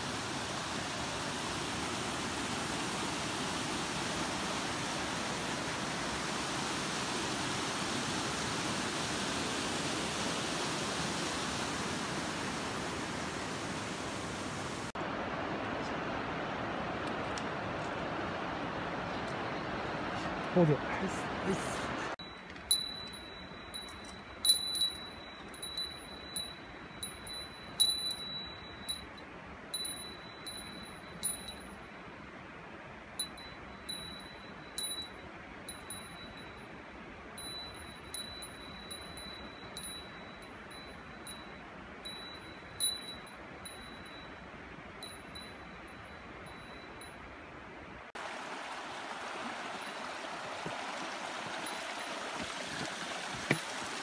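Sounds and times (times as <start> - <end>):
mountain stream rushing: 0.0 - 54.0
small metal bell jingling: 22.2 - 31.9, 33.2 - 36.6, 37.4 - 44.4.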